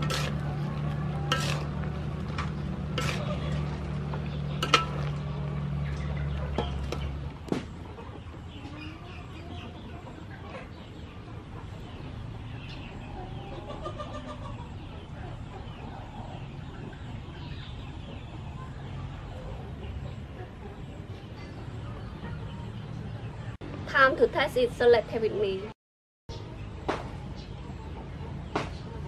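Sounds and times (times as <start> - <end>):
chickens clucking: 0.0 - 23.6, 26.3 - 29.0
spatula clinking against a wok: 1.3 - 1.8, 4.6 - 5.2.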